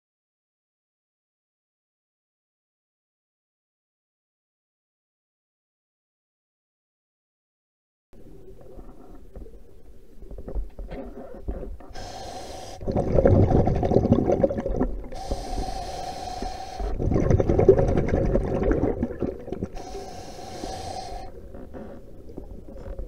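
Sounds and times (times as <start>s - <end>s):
regulator hissing inhale: 11.1s - 13.1s, 15.0s - 17.0s, 19.6s - 22.2s
exhaled bubbles gurgling: 12.0s - 23.0s.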